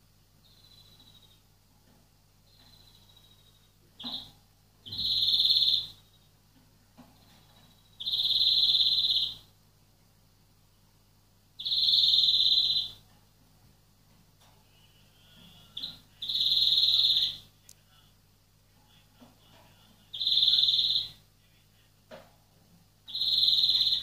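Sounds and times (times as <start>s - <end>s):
bird buzzy wheeze call: 4.9s - 6.0s, 14.7s - 17.4s, 20.1s - 21.2s, 23.1s - 24.0s.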